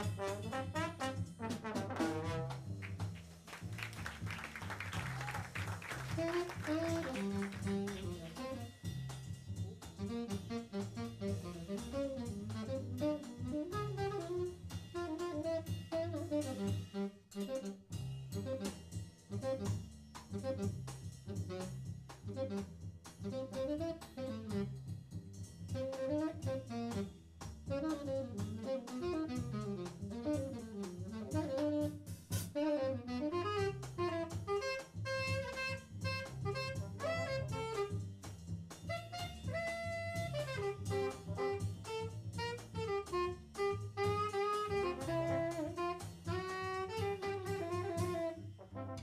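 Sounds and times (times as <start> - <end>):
double bass: 0.0 - 49.0
tenor saxophone solo: 4.9 - 8.9, 10.0 - 17.8, 20.3 - 21.7, 22.3 - 24.8, 25.8 - 27.1, 27.7 - 38.0, 38.9 - 49.0
drum kit cymbal strokes: 6.1 - 49.0.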